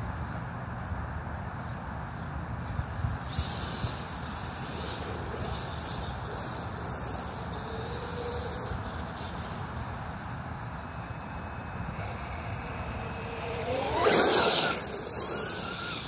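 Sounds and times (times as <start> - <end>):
electric motor whining: 3.3 - 16.0.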